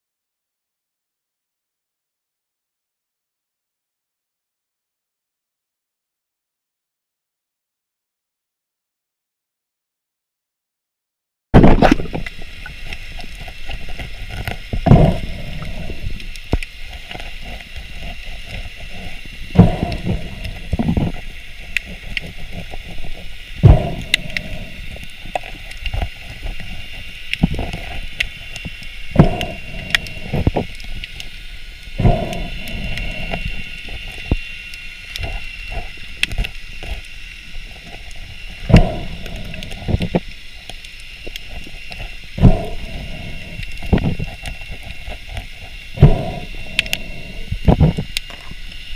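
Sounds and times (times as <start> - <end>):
muffled underwater knocks and scrapes: 11.6 - 31.3, 35.1 - 48.8
steady hiss: 11.6 - 48.9
faint crackling clicks: 11.9 - 48.9.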